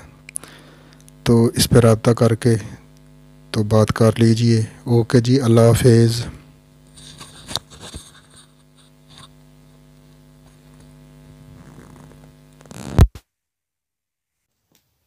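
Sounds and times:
electrical mains hum: 0.0 - 13.2.

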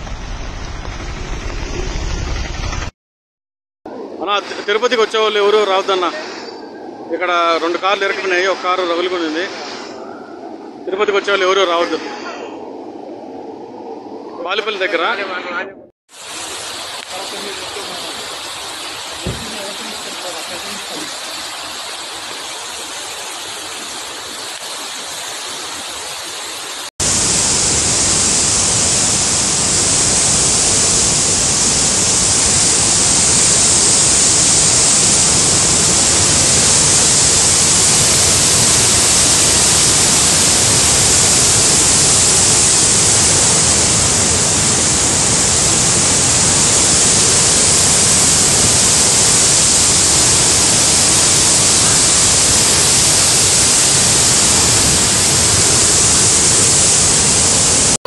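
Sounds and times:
floodwater rushing over rocks: 7.2 - 10.0, 16.1 - 58.0.

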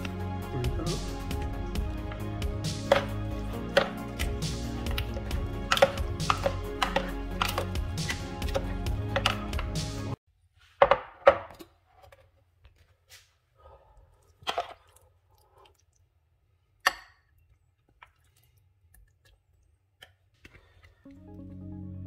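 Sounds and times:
background music: 0.0 - 10.2, 21.1 - 22.0.

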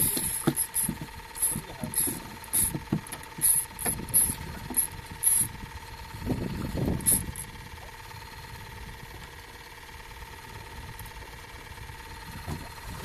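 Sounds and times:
knocks and rattles with hiss: 0.0 - 8.1
motor whining: 0.0 - 13.0.

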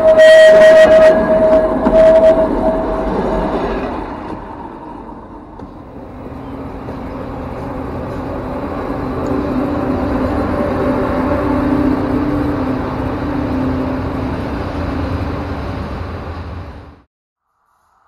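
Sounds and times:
steady high tone: 0.0 - 3.7, 5.9 - 16.2
diesel locomotive passing overhead: 0.0 - 17.1
electric locomotive hauling freight wagons: 0.0 - 17.1.

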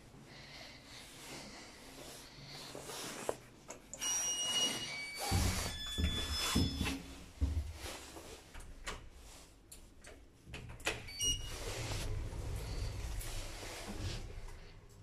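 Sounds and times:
sliding doors closing with thuds: 10.6 - 14.8
lift low hum: 11.4 - 15.0.

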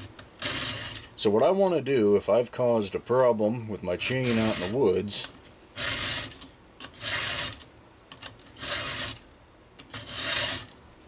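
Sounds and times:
file rasping on chain teeth: 7.0 - 7.6, 8.6 - 9.2, 10.0 - 10.7.

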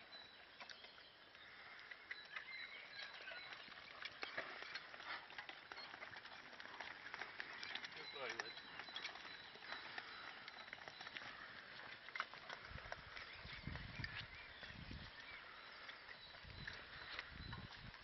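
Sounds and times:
harness chains clinking: 2.0 - 14.2.

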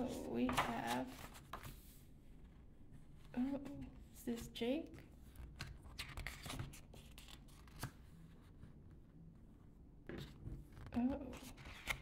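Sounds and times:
book pages rustling: 0.3 - 3.3, 5.1 - 9.2, 10.2 - 12.0.

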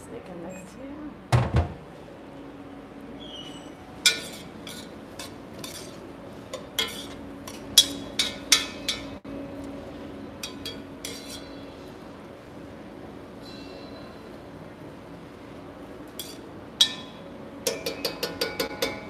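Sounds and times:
steady low hum: 0.0 - 19.0
utensil clinking against pot: 4.0 - 9.2, 16.2 - 19.0
utensil stirring vegetables: 4.0 - 9.2, 10.4 - 11.7, 16.1 - 19.0.

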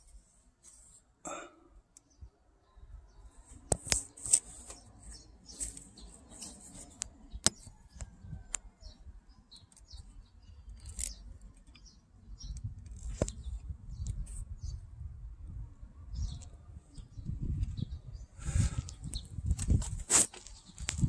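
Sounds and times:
small scrapes: 3.5 - 7.7, 19.6 - 21.0.

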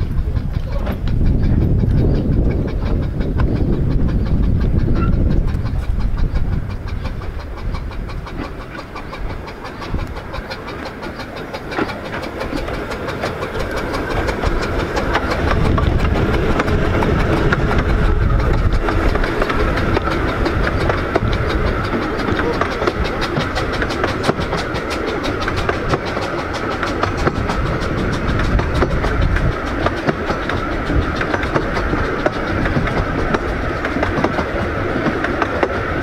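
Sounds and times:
steam train passing: 0.0 - 36.0
wheels clattering over rails: 0.0 - 36.0.

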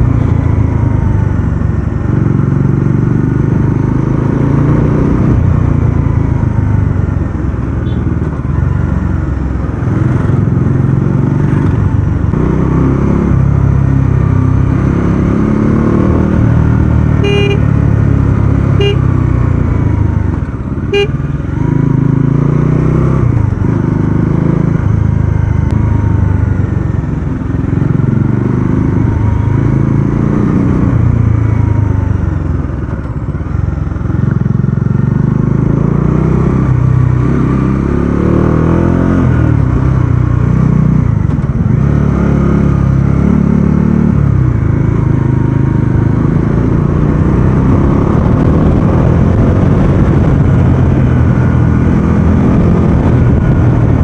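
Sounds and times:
motorcycle engine running: 0.0 - 54.0
horn beeps: 17.1 - 17.7, 18.6 - 19.2, 20.9 - 21.4.

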